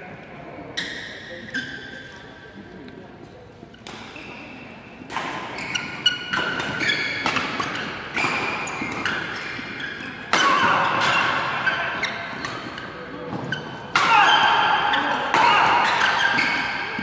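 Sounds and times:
shoes squeaking on court: 0:00.7 - 0:02.6, 0:05.4 - 0:13.9, 0:15.8 - 0:17.0
racket striking shuttlecock: 0:05.1 - 0:17.0.

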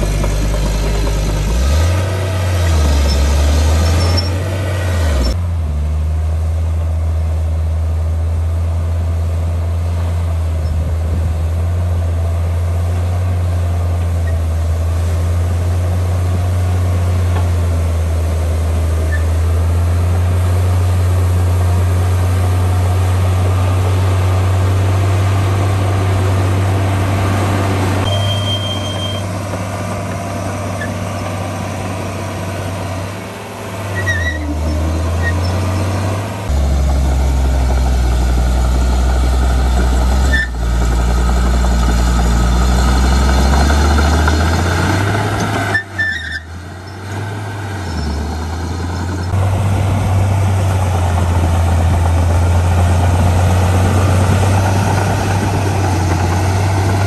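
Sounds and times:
heavy diesel engine droning: 0:00.0 - 0:57.0
short high beep: 0:28.0 - 0:29.3.

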